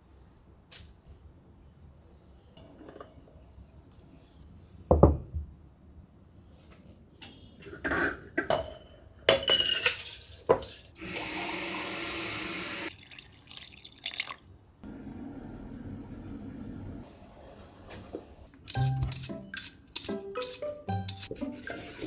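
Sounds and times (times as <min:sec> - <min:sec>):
quiet steady hiss: 0:00.0 - 0:07.7
glassware clinking: 0:08.5 - 0:10.9
tap water running into pitcher: 0:11.0 - 0:14.6.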